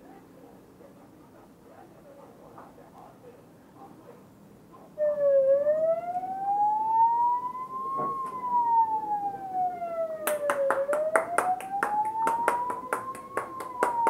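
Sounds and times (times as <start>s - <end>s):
siren-like wail: 5.0s - 14.0s
quick regular clapping: 10.2s - 14.0s.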